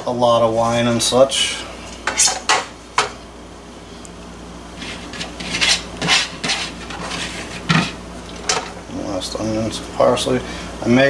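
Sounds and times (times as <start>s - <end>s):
meat rubbing and scraping in basket: 4.7s - 8.0s.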